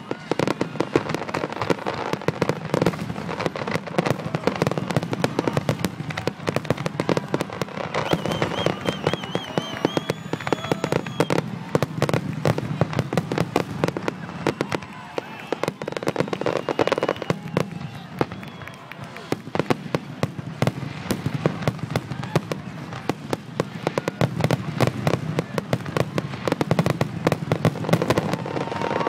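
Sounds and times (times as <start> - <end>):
fireworks bursting: 0.0 - 29.0
warbling high whistle: 8.0 - 11.4.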